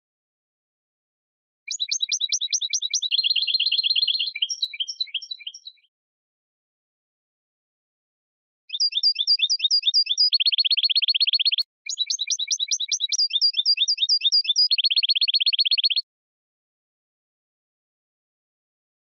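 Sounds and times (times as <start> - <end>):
finch singing with buzzy trills: 1.7 - 5.8, 8.7 - 16.0.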